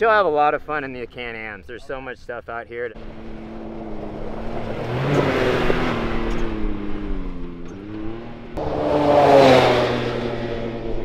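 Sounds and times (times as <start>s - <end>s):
utility vehicle engine revving: 3.0s - 11.0s.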